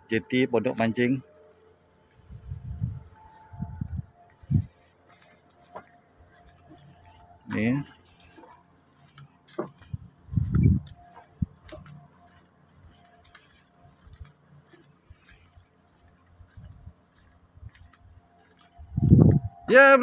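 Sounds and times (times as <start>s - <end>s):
high-pitched insect chorus: 0.0s - 20.0s
dull thump: 9.5s - 10.8s.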